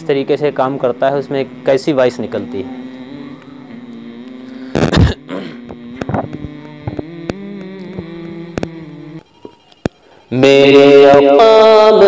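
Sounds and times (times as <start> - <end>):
speaker hum: 0.0 - 12.0
sharp clicks: 2.9 - 5.0, 5.6 - 10.3.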